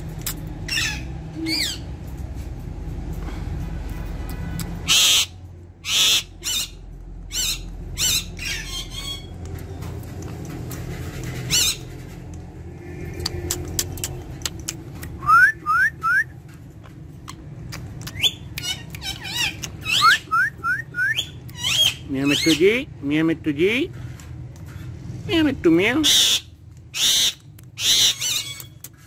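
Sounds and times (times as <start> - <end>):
parakeet squawking: 0.6 - 1.9, 4.8 - 9.4, 11.4 - 11.9, 17.3 - 20.5, 21.1 - 22.8, 25.9 - 29.0
parakeet whistled chirps: 19.8 - 22.0.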